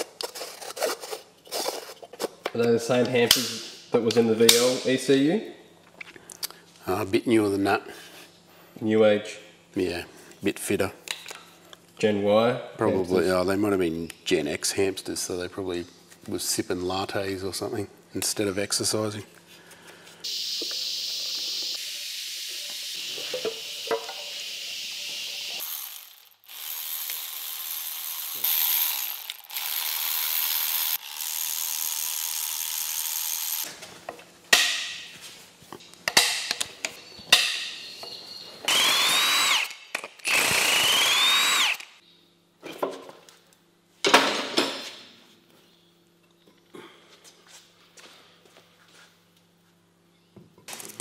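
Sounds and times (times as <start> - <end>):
power tool motor whining: 22.5 - 33.7, 38.7 - 41.9.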